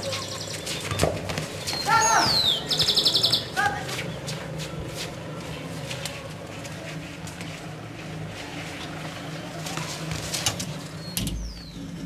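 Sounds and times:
songbird whistling and trilling: 0:01.7 - 0:03.5.

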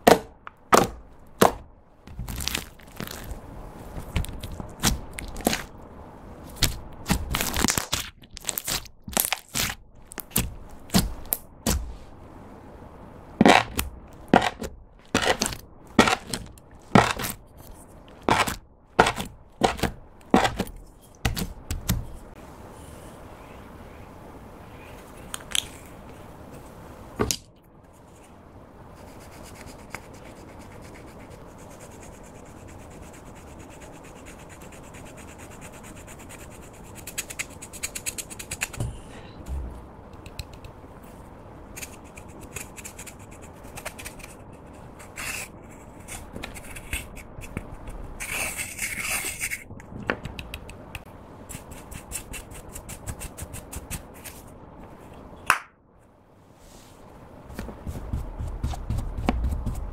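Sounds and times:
faint steady hiss: 0:00.0 - 0:59.9
fingers scraping eyeshadow powder: 0:13.4 - 0:21.5, 0:29.0 - 0:38.8, 0:41.8 - 0:49.6, 0:51.5 - 0:54.4.

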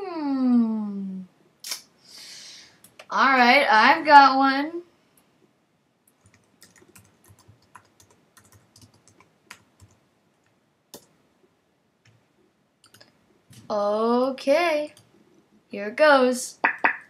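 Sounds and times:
typing on a keyboard: 0:06.1 - 0:10.0, 0:12.8 - 0:13.1.

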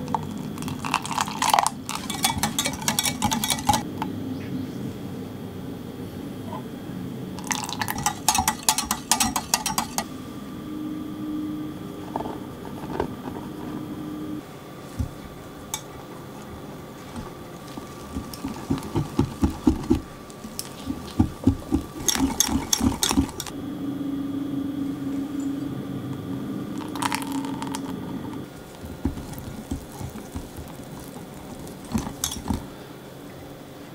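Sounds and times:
whisk beating batter in glass jug: 0:00.0 - 0:03.8, 0:07.4 - 0:10.1, 0:15.0 - 0:23.5, 0:26.7 - 0:32.8.

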